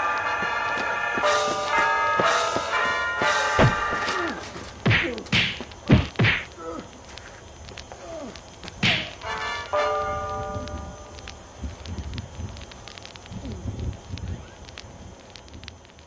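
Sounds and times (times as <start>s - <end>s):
held musical chord: 0.0s - 4.5s
punch whacks: 4.8s - 6.5s.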